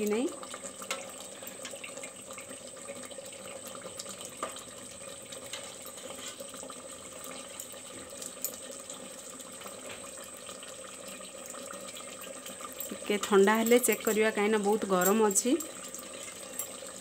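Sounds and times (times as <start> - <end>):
gravy bubbling and sizzling: 0.0 - 17.0
spatula scraping a pot: 5.5 - 6.5.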